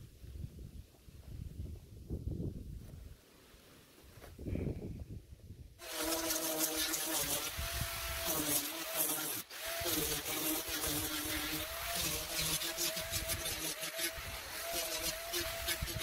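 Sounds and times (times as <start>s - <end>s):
power sander on wood: 5.8s - 16.0s.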